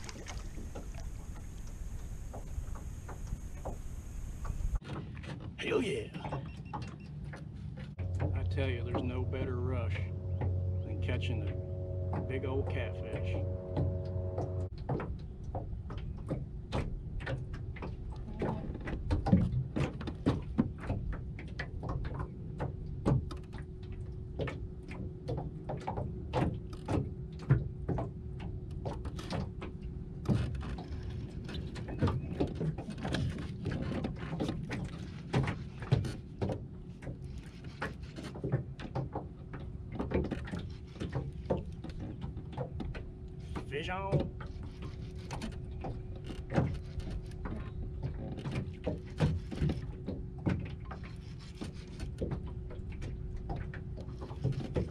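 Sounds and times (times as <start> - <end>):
waves slapping boat hull: 0.0 - 54.9
low rumble: 8.0 - 14.7.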